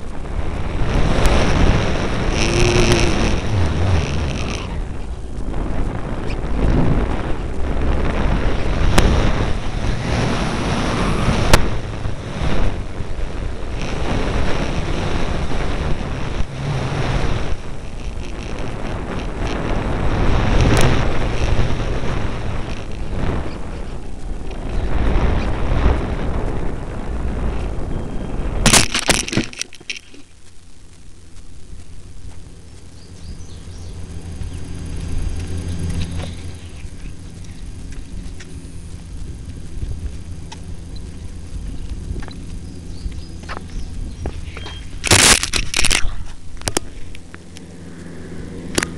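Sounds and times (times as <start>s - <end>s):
wind rush buffeting microphone: 0.0s - 48.9s
sharp clicks: 28.7s - 47.7s.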